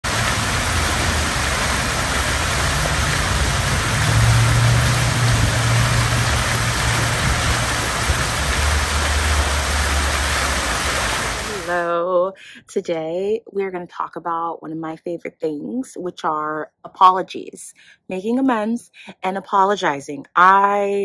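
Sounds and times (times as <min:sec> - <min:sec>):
low rumble: 0:00.0 - 0:11.6
fountain water splashing: 0:00.0 - 0:11.8.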